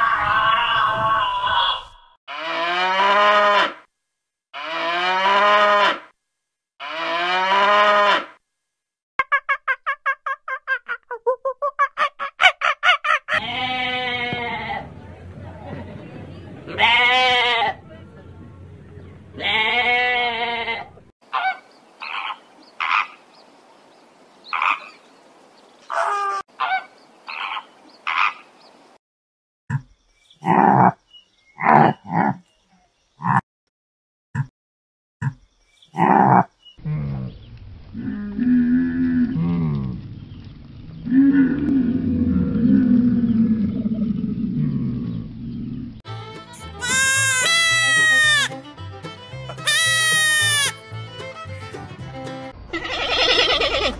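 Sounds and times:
sheep bleating: 0:04.6 - 0:06.0, 0:06.8 - 0:08.3, 0:13.4 - 0:14.8, 0:16.7 - 0:17.8, 0:19.4 - 0:20.9, 0:46.5 - 0:48.7, 0:49.3 - 0:51.1, 0:52.7 - 0:53.9.

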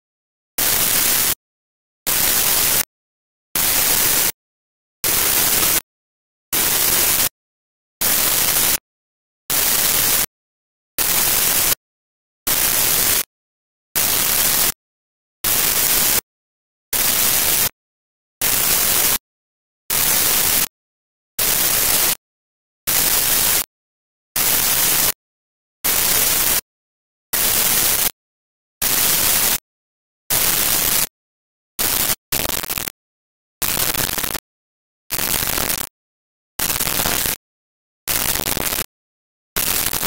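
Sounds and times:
pulsing static hiss: 0:36.7 - 0:37.4.

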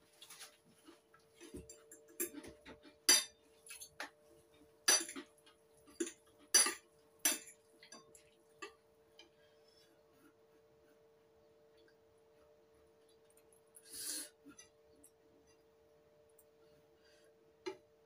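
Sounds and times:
faint steady hum: 0:00.0 - 0:18.0
metal cutlery clinking on a bowl: 0:01.4 - 0:04.1, 0:04.9 - 0:08.8.

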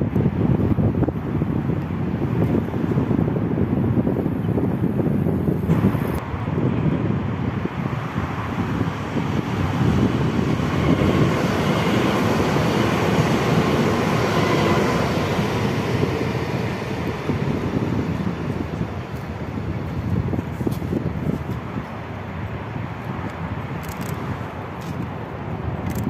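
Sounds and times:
train wheels rushing on rails: 0:05.6 - 0:21.8.

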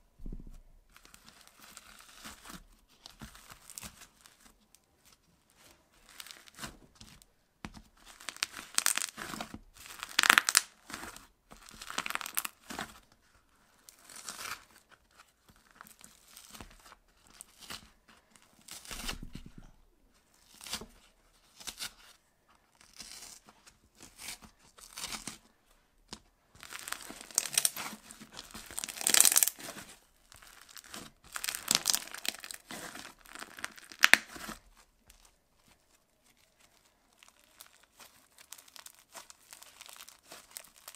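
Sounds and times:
crunchy slime crackling and tearing: 0:00.9 - 0:04.5, 0:06.0 - 0:06.7, 0:08.0 - 0:13.0, 0:13.7 - 0:14.9, 0:18.6 - 0:19.7, 0:22.8 - 0:25.4, 0:26.1 - 0:40.9.

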